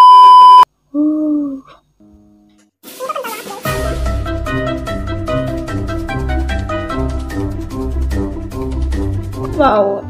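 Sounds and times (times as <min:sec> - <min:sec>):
background music with bass: 0:03.7 - 0:10.0.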